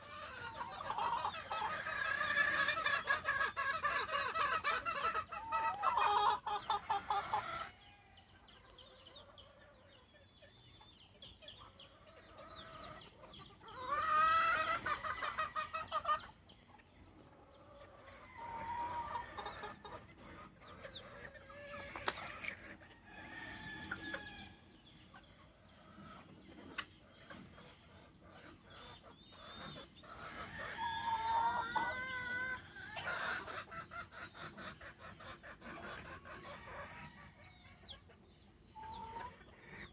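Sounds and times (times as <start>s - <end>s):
chickens clucking: 0.0s - 39.9s
roosters crowing: 17.8s - 19.8s, 21.5s - 24.8s, 30.2s - 33.5s.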